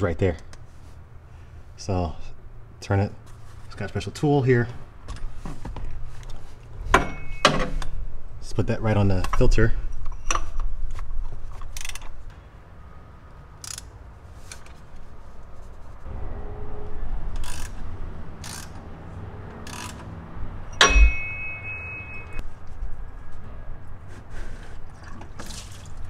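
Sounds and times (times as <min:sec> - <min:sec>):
ratchet wrench clicking: 0:13.6 - 0:13.9, 0:18.4 - 0:18.8, 0:19.7 - 0:20.0
metal clank: 0:20.7 - 0:22.4
brief high metallic ring: 0:20.8 - 0:22.4.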